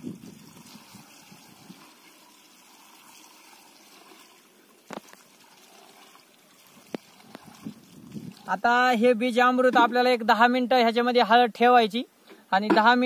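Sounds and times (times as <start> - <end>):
liquid pouring into bucket: 0.0 - 8.7.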